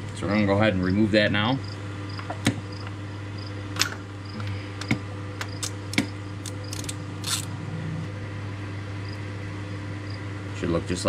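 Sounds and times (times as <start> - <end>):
steady low hum: 0.0 - 11.0
metallic clicks of hand tools: 5.5 - 7.5.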